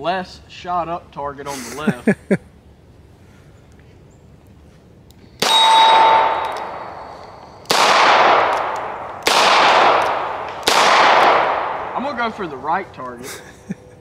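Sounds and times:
revolver shots echoing: 5.4s - 12.9s.

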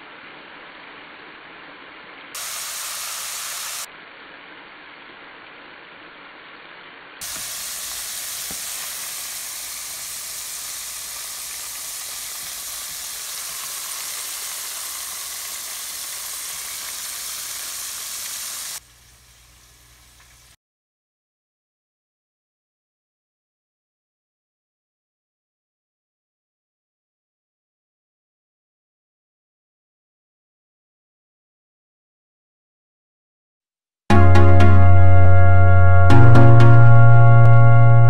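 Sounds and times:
food deep-frying in oil: 0.2s - 3.9s, 7.2s - 20.6s.

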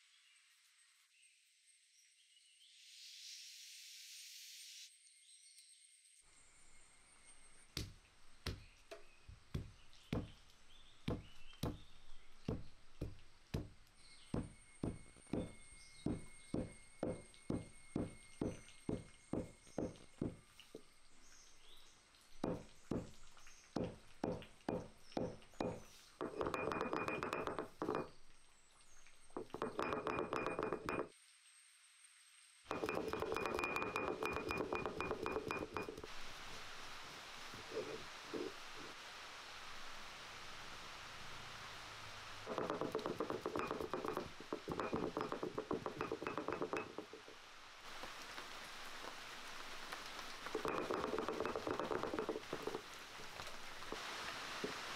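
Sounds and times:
stone roller knocking on stone: 7.8s - 10.4s, 11.1s - 20.4s, 22.4s - 23.2s, 23.8s - 28.1s, 29.4s - 31.1s, 32.7s - 36.1s, 42.5s - 47.3s, 50.6s - 52.8s
stone roller grinding: 12.5s - 20.4s, 22.4s - 23.2s, 23.8s - 28.1s, 29.4s - 31.1s, 32.7s - 36.1s, 42.5s - 47.3s, 50.6s - 52.8s.

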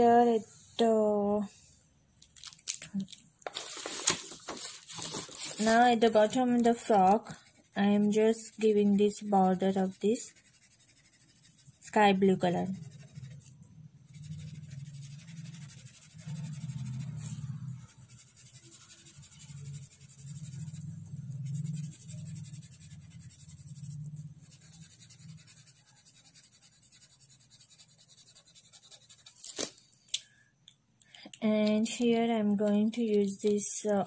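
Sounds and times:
felt-tip pen rubbing on paper: 5.6s - 29.4s.

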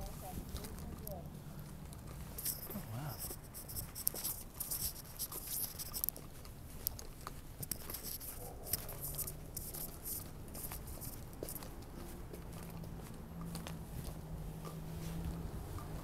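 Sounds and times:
footsteps on dry grass and leaves: 0.0s - 16.0s
sleeve brushing phone microphone: 2.3s - 6.1s, 7.8s - 11.6s.

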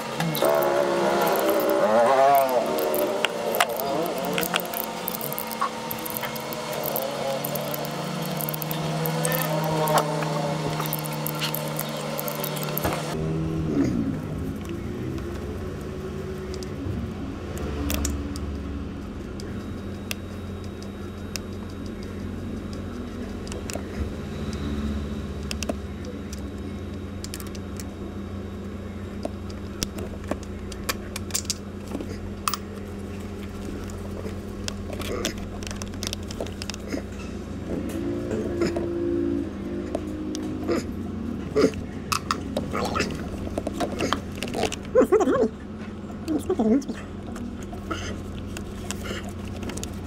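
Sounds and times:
power tool running: 0.0s - 18.6s
steady low hum: 0.0s - 50.0s.

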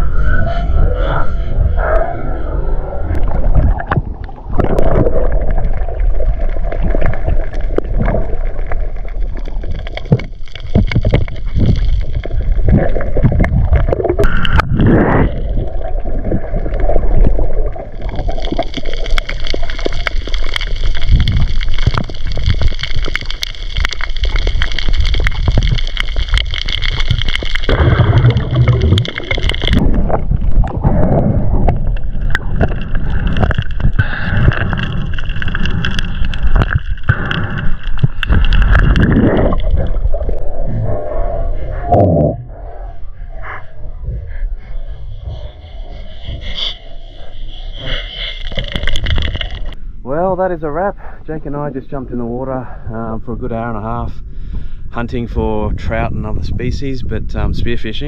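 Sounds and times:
muffled underwater rushing: 0.0s - 49.8s
knocks underwater: 24.9s - 40.4s.

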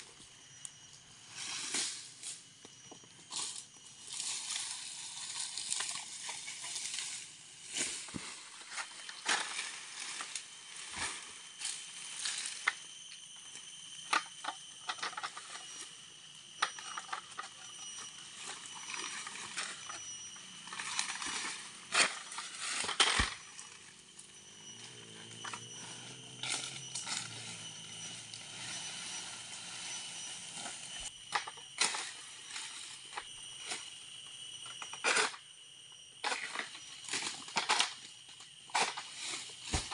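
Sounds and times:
steady high drone: 0.0s - 34.9s
palm fronds rustling and cracking: 3.4s - 12.7s.

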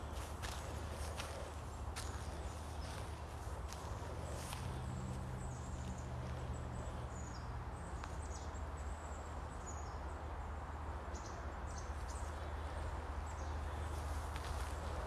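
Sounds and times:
footsteps on sandy trail: 0.0s - 6.9s, 12.0s - 15.0s.

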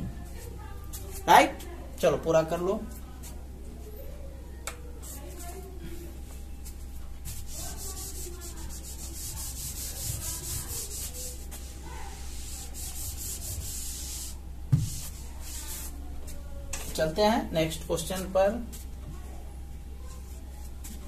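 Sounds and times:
eraser wiping whiteboard: 7.2s - 16.0s.

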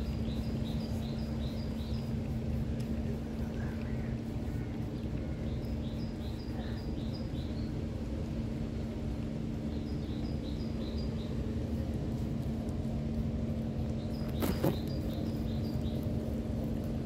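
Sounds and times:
bird chirping: 0.0s - 2.2s, 4.9s - 7.7s, 9.7s - 11.4s, 14.0s - 16.1s
low drone with hum: 0.0s - 17.0s.

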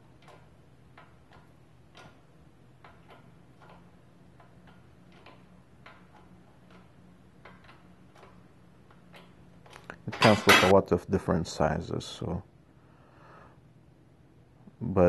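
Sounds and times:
faint irregular press clicks: 0.0s - 10.0s.

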